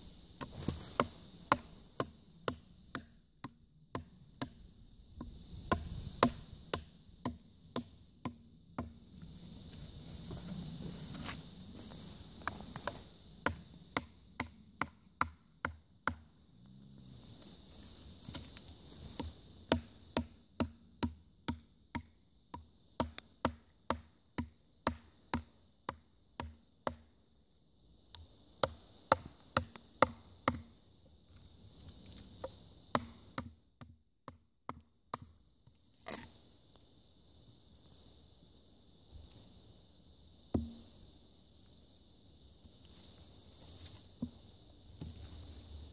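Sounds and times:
knife chopping wooden log: 0:05.2 - 0:09.0, 0:40.6 - 0:40.9.

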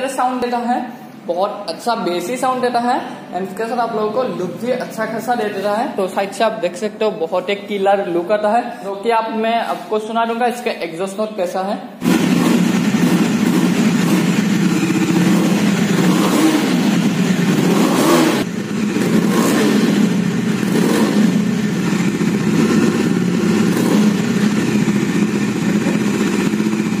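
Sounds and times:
motorcycle engine revving: 0:12.0 - 0:27.0.

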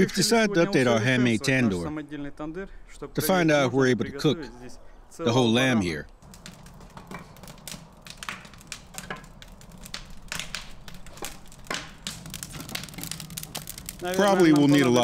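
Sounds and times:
clay bricks clicking and knocking: 0:06.1 - 0:15.0.

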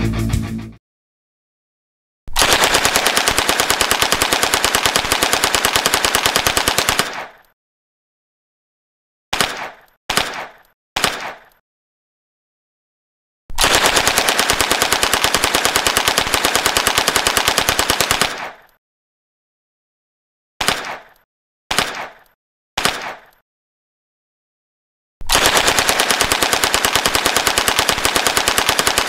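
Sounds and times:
submachine gun automatic fire: 0:02.3 - 0:07.4, 0:13.5 - 0:18.7, 0:25.3 - 0:29.0.

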